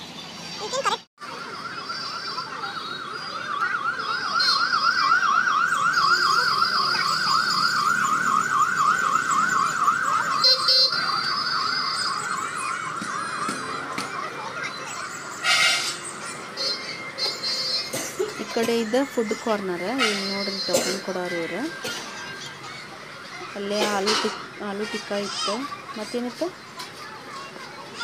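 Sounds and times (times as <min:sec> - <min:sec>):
electronic siren warbling: 0:01.3 - 0:17.9.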